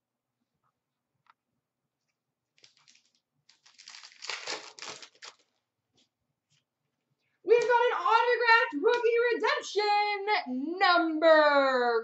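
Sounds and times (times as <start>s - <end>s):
cards crinkling and rustling: 2.5s - 5.6s.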